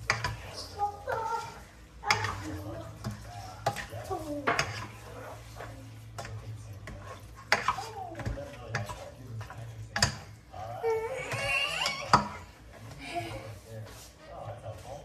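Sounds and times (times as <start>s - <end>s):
utensil clacking against pot: 0.0s - 5.0s, 5.6s - 10.4s, 11.2s - 13.0s
spatula stirring in pot: 0.0s - 15.0s.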